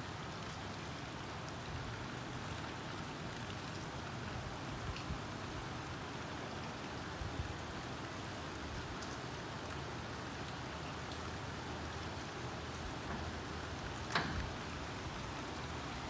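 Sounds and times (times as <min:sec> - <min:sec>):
rain on tiled roof: 0:00.0 - 0:16.0.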